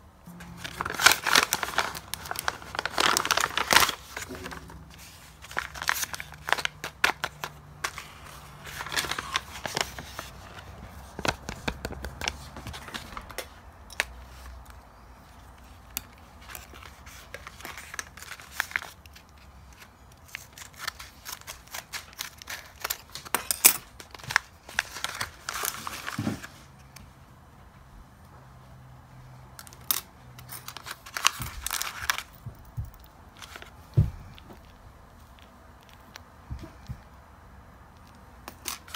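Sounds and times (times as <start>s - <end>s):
paper bag crinkling: 0.3s - 13.6s, 15.6s - 26.6s, 30.6s - 32.4s.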